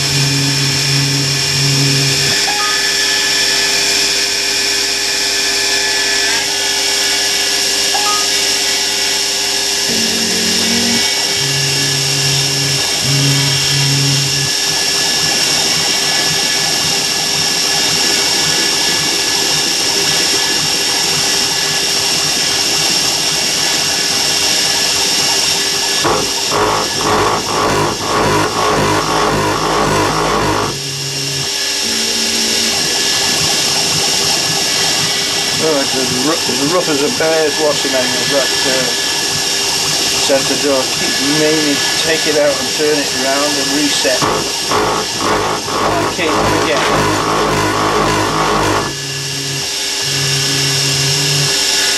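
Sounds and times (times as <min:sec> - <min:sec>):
axis motors humming: 0:00.0 - 0:04.6, 0:06.3 - 0:51.9
mill spindle whine: 0:00.0 - 0:51.9
drill chattering into metal: 0:26.0 - 0:30.8, 0:43.5 - 0:48.9.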